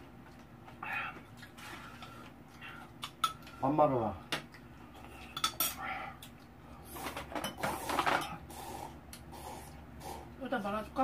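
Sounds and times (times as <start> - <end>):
utensils clinking against bowl: 5.1 - 5.8, 7.0 - 8.4.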